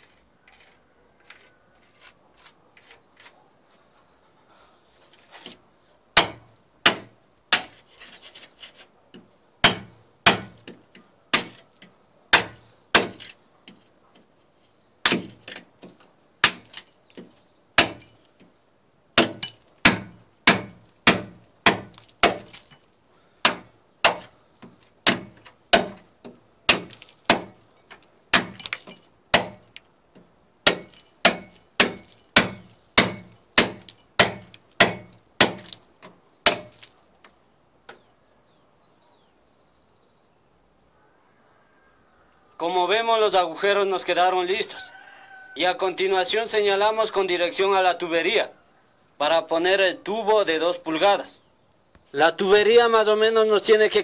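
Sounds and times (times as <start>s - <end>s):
hammer striking chisel: 30.7s - 35.8s.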